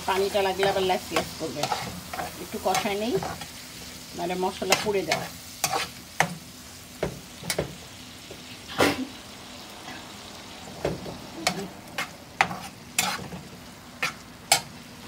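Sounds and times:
spatula scraping frying pan: 0:00.0 - 0:06.4, 0:11.4 - 0:14.7
low steady sizzle: 0:00.0 - 0:15.0.

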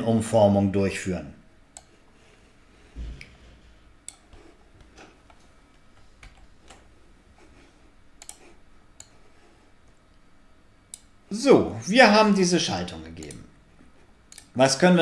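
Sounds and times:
low room hiss: 0:00.0 - 0:15.0
mouse and keyboard clicks: 0:08.2 - 0:09.2.

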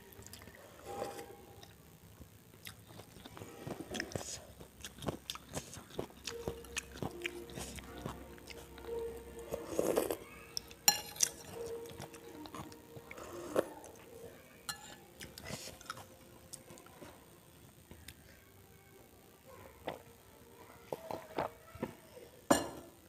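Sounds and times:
soup sipping and chewing: 0:02.6 - 0:14.1, 0:15.2 - 0:16.8
metal spoon clinking ceramic bowl: 0:10.9 - 0:11.5, 0:14.7 - 0:15.0.

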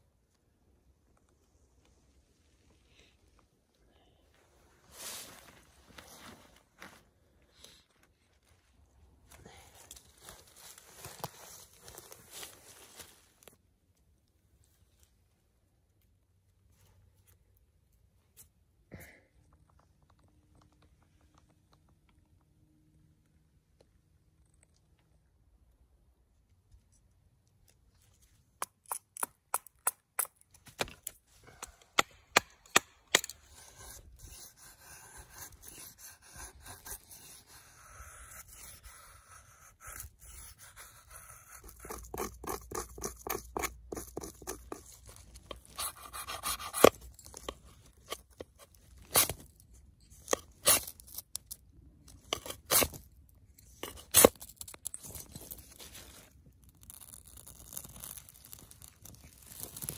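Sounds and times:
knife shaving wood: 0:31.0 - 0:59.9.

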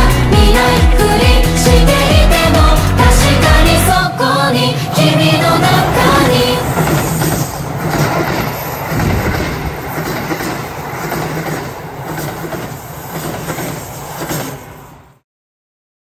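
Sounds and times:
train wheels clattering: 0:05.0 - 0:15.1.

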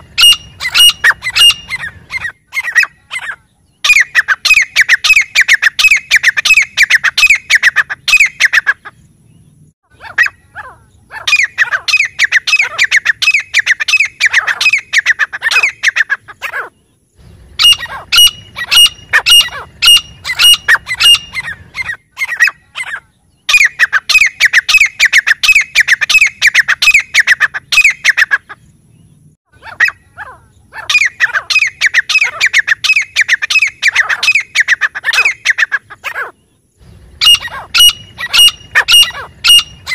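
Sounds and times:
bird whistled notes: 0:00.0 - 0:08.6, 0:17.6 - 0:22.8, 0:37.2 - 0:39.9
bird harsh repeated calls: 0:00.0 - 0:09.0, 0:09.8 - 0:28.8, 0:29.5 - 0:39.9.

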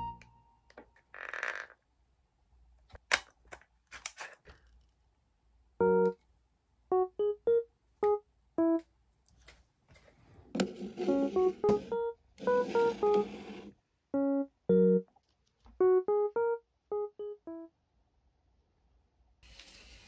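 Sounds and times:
keyboard background music: 0:00.0 - 0:00.7, 0:05.8 - 0:06.2, 0:06.9 - 0:08.9, 0:10.9 - 0:15.1, 0:15.8 - 0:17.7.

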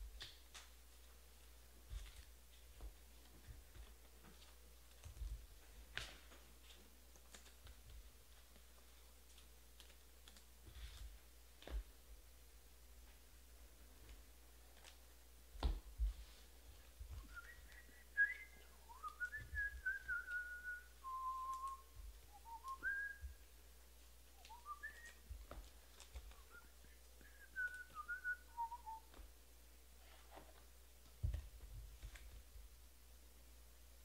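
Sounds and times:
person whistling a tune: 0:17.2 - 0:23.4, 0:24.4 - 0:25.3, 0:26.3 - 0:29.1.

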